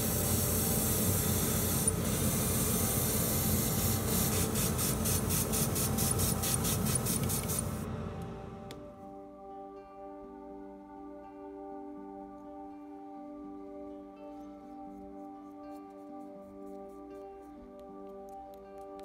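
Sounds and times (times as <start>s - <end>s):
airbrush hissing: 0.0s - 7.8s.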